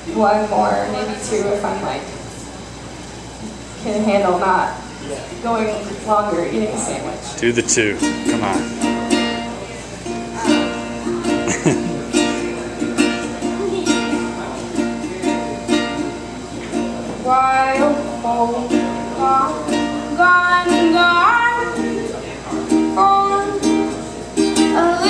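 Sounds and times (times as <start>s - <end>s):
ukulele strumming: 7.7s - 25.0s
woman singing: 17.2s - 22.0s, 22.9s - 25.0s.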